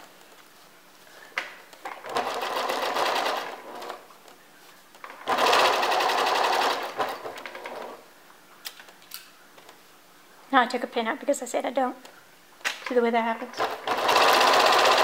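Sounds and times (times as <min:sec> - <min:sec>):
sewing machine stitching: 0:01.9 - 0:04.0, 0:05.1 - 0:08.0, 0:13.6 - 0:15.0.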